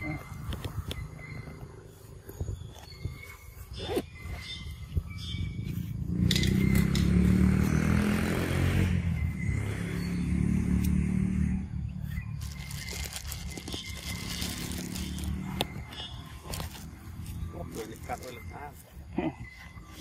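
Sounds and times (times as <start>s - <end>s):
vehicle engine passing by: 5.2s - 18.5s.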